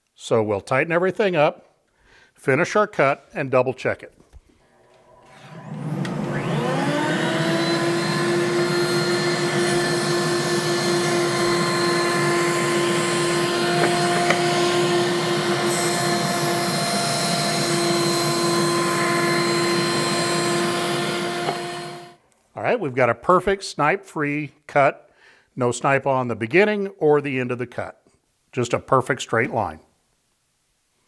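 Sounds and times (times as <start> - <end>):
router whining: 4.7 - 22.2.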